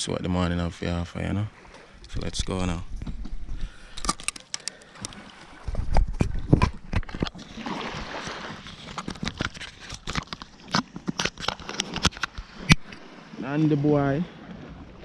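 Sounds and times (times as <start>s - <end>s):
camera handling crunches and clicks: 3.9s - 5.2s, 8.6s - 13.0s.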